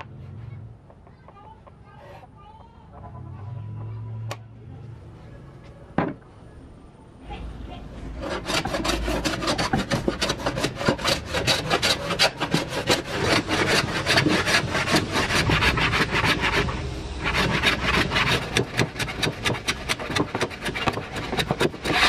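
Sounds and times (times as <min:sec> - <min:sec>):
hand plane scraping wood: 0:08.1 - 0:22.0.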